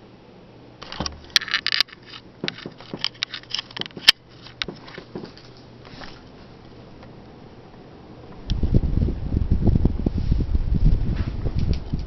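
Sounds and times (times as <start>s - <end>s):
ceiling fan motor hum: 0.0s - 12.0s
sharp clicks and rustles: 0.8s - 7.2s.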